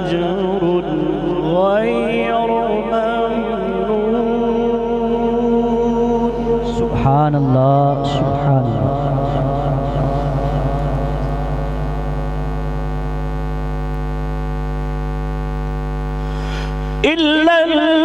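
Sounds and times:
echo of reciting voice: 0:00.0 - 0:11.8, 0:17.0 - 0:18.0
electrical hum from loudspeakers: 0:00.0 - 0:18.0.

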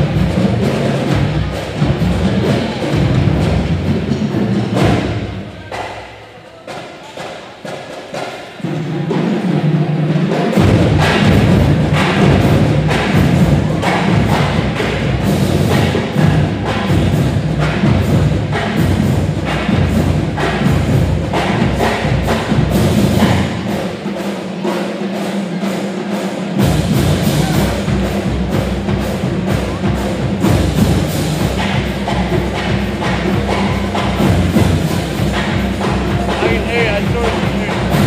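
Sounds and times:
music with heavy steady beat: 0:26.6 - 0:38.0.

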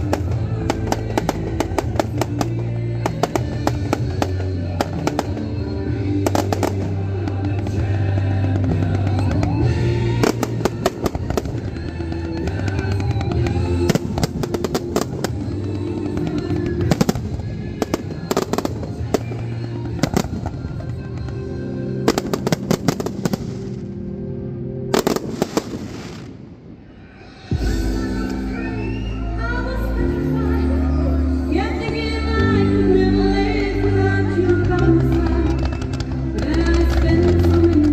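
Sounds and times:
fireworks bursting and crackling: 0:00.0 - 0:24.2, 0:24.8 - 0:29.0, 0:34.2 - 0:37.9
music soundtrack: 0:00.0 - 0:37.9.

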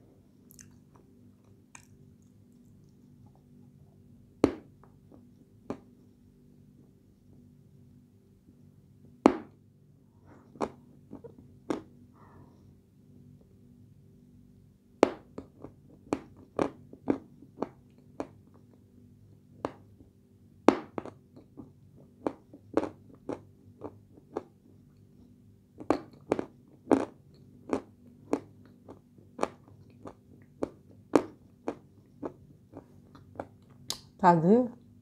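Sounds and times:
faint low hum: 0:00.0 - 0:35.0
person chewing crunchy clay: 0:00.5 - 0:03.5, 0:15.4 - 0:18.6, 0:21.0 - 0:24.6, 0:25.8 - 0:34.0.

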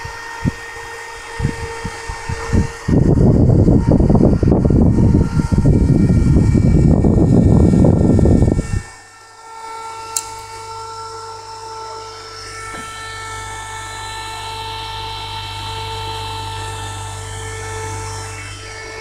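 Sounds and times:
small motor spinning fan: 0:00.0 - 0:19.0
sharp click: 0:10.1 - 0:10.5.

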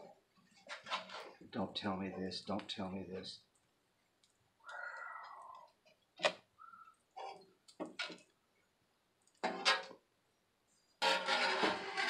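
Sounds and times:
spatula scraping griddle: 0:00.6 - 0:01.4, 0:11.0 - 0:12.0.

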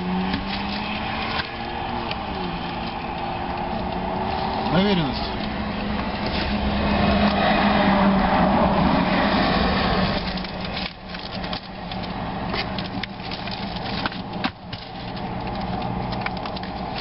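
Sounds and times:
papers rustling: 0:00.0 - 0:06.7, 0:10.2 - 0:17.0
vehicle passing close by: 0:00.0 - 0:10.7.

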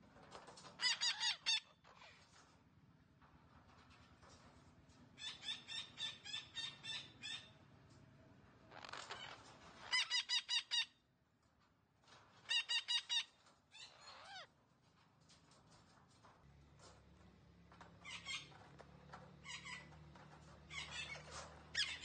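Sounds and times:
parakeet calling: 0:13.8 - 0:14.5.

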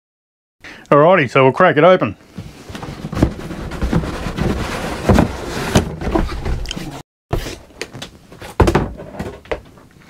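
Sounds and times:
knocks on cardboard box: 0:02.4 - 0:06.2, 0:08.6 - 0:09.6.

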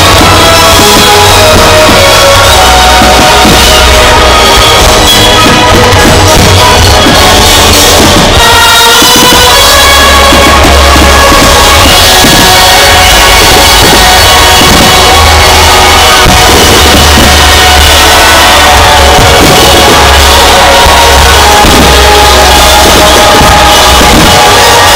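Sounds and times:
loud show music with drums: 0:00.0 - 0:24.9.

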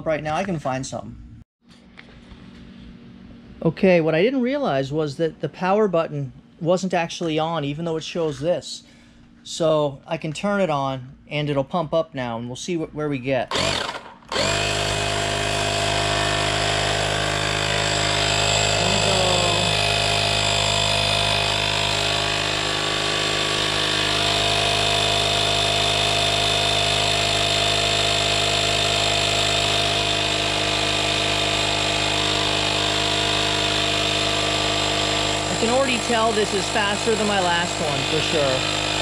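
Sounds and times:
electric air compressor humming: 0:13.5 - 0:39.0.

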